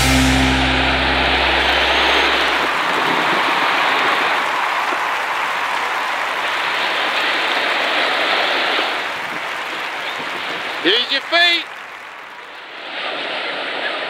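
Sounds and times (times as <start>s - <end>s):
surf breaking and rushing: 6.4s - 11.0s.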